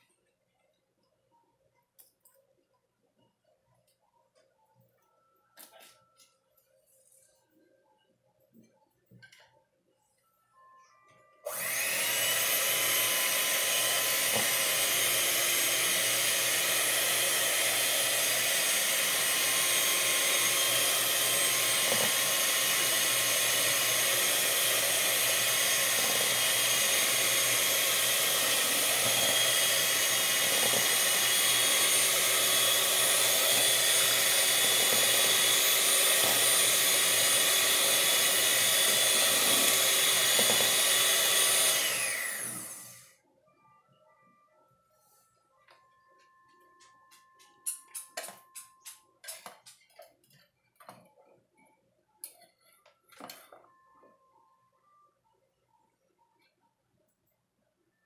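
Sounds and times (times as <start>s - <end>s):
electric hand mixer whining: 11.5s - 43.2s.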